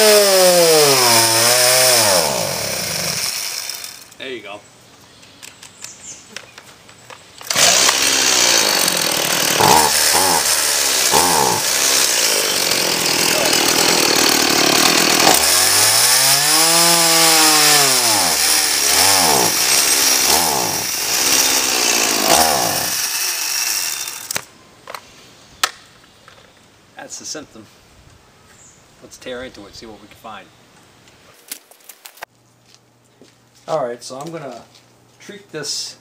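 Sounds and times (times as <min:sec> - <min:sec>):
chainsaw engine revving: 0:00.0 - 0:04.0, 0:07.4 - 0:24.4.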